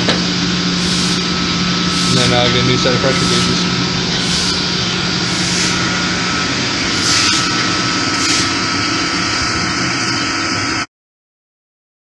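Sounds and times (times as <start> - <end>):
machinery drone: 0.0 - 10.9.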